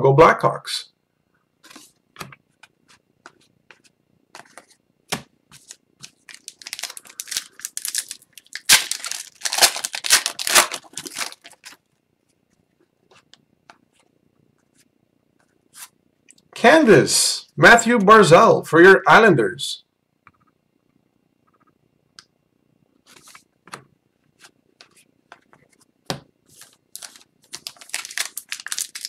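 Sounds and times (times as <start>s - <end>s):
foil wrapper tearing and crinkling: 6.0s - 11.8s, 26.6s - 29.0s.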